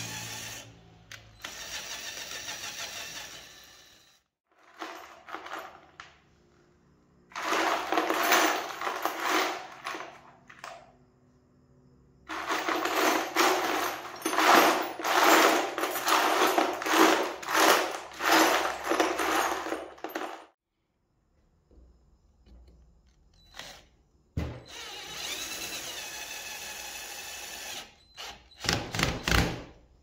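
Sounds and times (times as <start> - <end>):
metal bolts clattering in a tub: 4.6 - 6.2, 7.3 - 10.9, 12.3 - 20.6.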